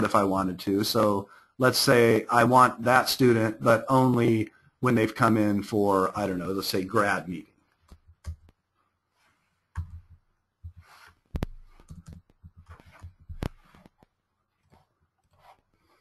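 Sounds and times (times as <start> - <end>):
keyboard keys tapping: 7.8 - 8.6, 9.7 - 13.8.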